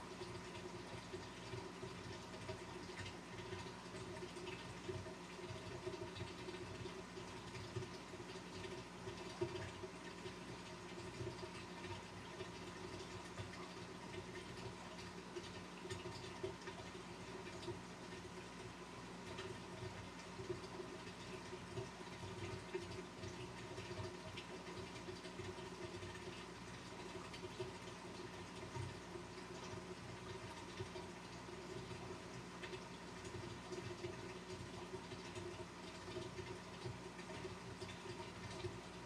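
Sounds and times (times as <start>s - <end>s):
water drips and bubbles: 0.0s - 39.0s
water trickling and splashing: 0.0s - 39.0s.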